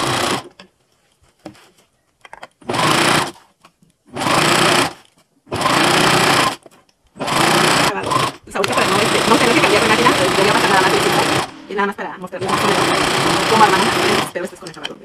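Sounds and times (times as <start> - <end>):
electric sewing machine stitching: 0.0 - 0.6, 2.6 - 3.4, 4.1 - 6.6, 7.2 - 11.8, 12.4 - 14.7.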